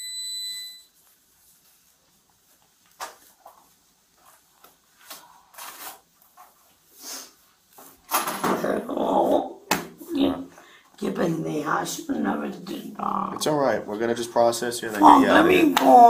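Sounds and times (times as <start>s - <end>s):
rustling and scuffing: 0.9s - 8.1s.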